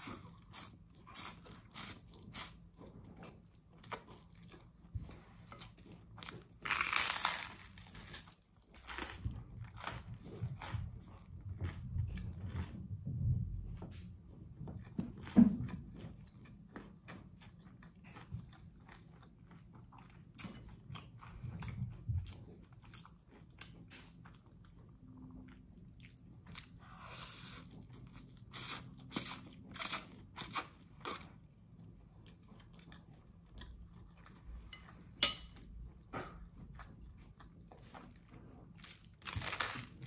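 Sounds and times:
chewing crunchy food: 0.0s - 13.1s, 13.8s - 40.0s.

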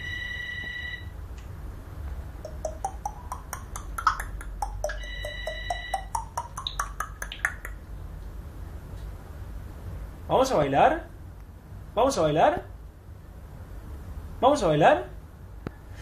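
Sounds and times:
parrot clicky rising notes: 2.4s - 7.8s
parrot mimicking telephone beep: 2.5s - 3.5s, 4.6s - 6.8s.

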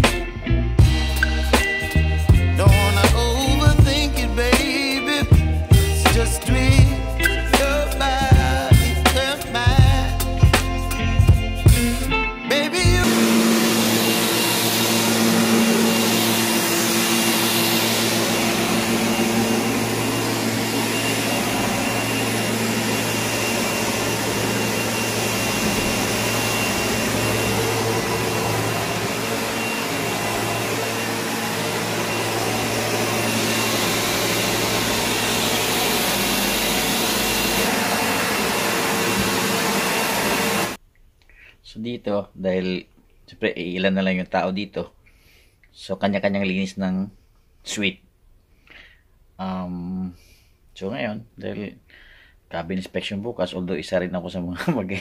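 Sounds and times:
vacuum cleaner running on carpet: 13.0s - 40.8s.

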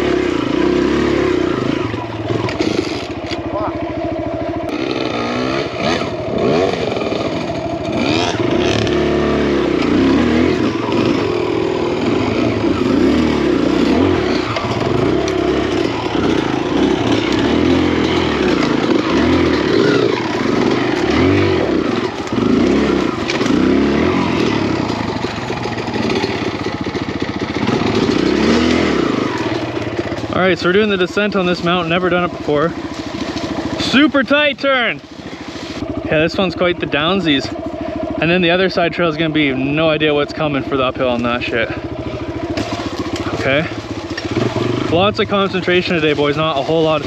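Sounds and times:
dirt bike engine revving: 0.0s - 47.0s
bike clattering over rocks: 42.5s - 44.7s.

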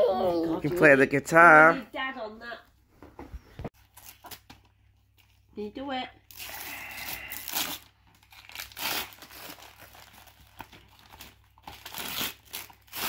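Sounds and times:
wrapping paper tearing and rustling: 3.8s - 5.4s, 6.3s - 13.0s.

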